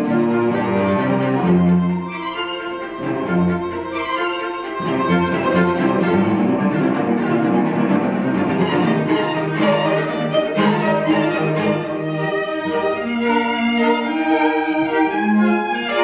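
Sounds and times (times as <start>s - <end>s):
string quartet playing: 0.0s - 16.0s.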